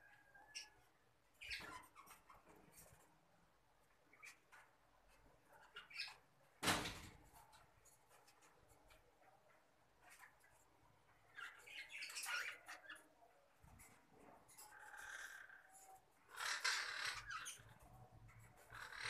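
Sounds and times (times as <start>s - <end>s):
birds squeaky chirping: 0.2s - 2.4s, 5.6s - 6.3s, 11.2s - 13.9s, 14.5s - 19.0s.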